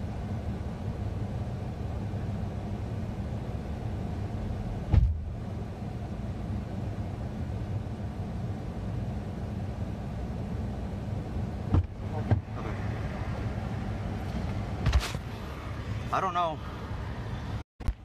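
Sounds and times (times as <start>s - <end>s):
sharp thump: 4.9s - 5.2s, 11.7s - 12.5s.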